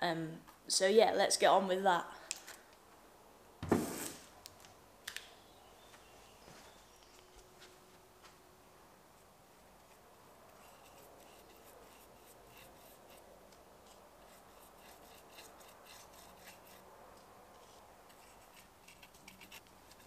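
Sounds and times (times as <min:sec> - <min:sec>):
paintbrush scratching on bark: 0:09.8 - 0:16.9, 0:17.5 - 0:20.0.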